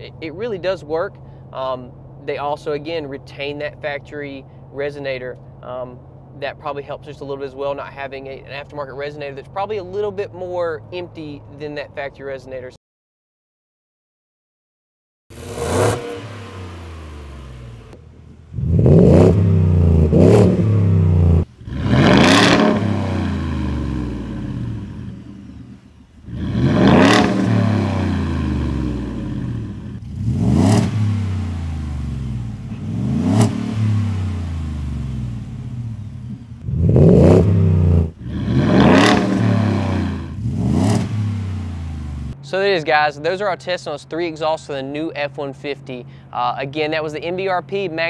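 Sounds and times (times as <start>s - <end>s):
truck engine revving: 15.3s - 42.4s.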